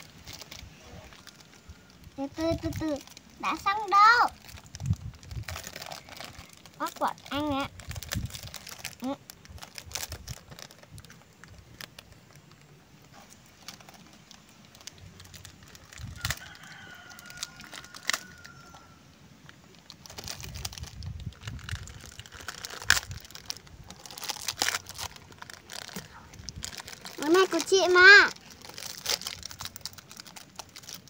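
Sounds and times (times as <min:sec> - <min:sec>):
plastic bags crinkling: 0:00.0 - 0:31.0
rooster crowing: 0:16.1 - 0:19.1.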